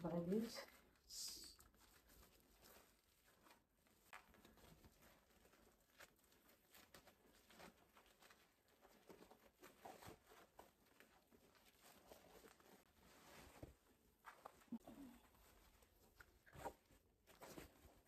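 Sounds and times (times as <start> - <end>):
fabric rustling: 0.0 - 18.0.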